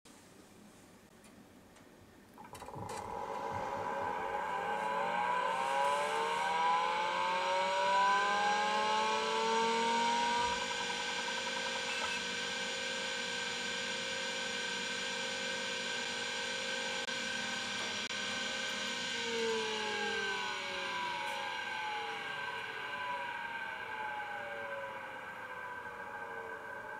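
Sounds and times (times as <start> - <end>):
hard disk spinning whine: 2.4 - 26.9.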